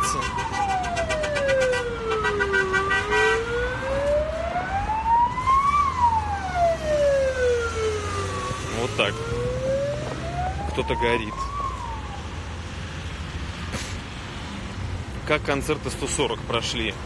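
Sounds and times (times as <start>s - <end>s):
emergency vehicle siren wailing: 0.0s - 13.2s
low traffic rumble: 0.0s - 17.0s.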